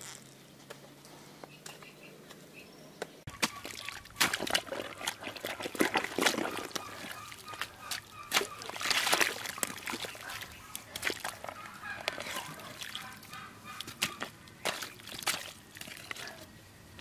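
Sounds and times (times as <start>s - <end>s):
hoe squelching in mud: 3.3s - 16.5s.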